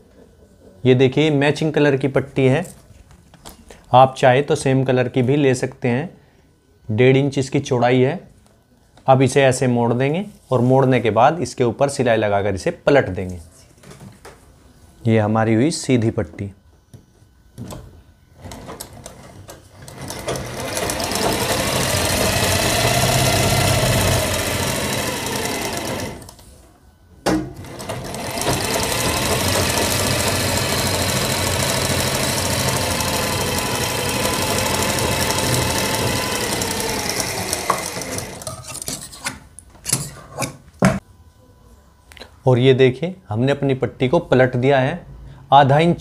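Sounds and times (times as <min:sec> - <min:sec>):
sewing machine stitching: 0:18.4 - 0:26.4, 0:27.6 - 0:38.8.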